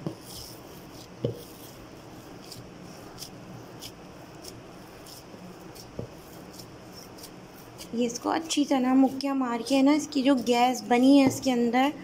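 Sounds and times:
dough squishing: 0.0s - 12.0s
thump on dough: 1.2s - 1.6s, 5.9s - 6.2s, 11.1s - 11.6s.

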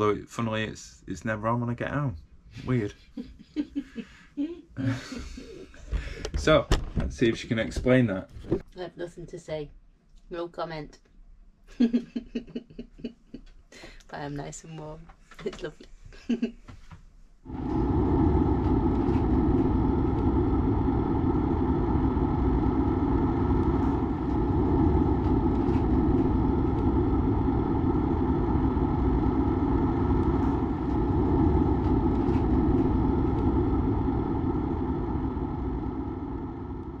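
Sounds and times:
boat engine running: 17.5s - 37.0s.

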